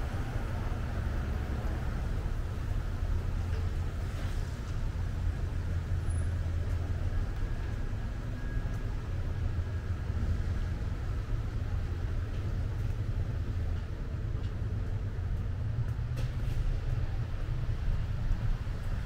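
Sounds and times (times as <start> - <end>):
city street traffic rumble: 0.0 - 19.0.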